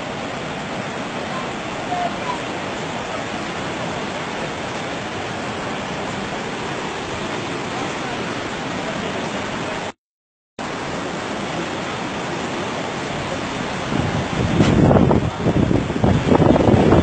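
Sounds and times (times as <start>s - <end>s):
river and waterfalls rushing: 0.0s - 10.0s, 10.6s - 17.0s
wind buffeting microphone: 12.6s - 17.0s.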